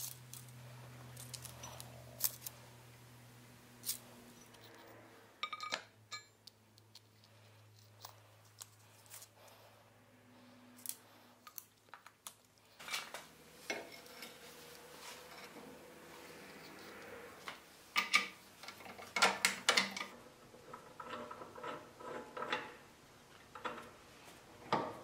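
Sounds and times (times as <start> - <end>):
low steady hum: 0.0 - 25.0
metal tools clicking and clinking: 5.4 - 6.6.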